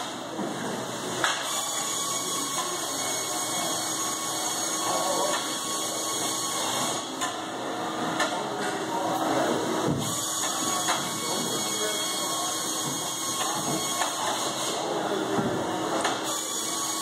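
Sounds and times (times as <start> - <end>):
factory machinery hum and hiss: 0.0 - 17.0.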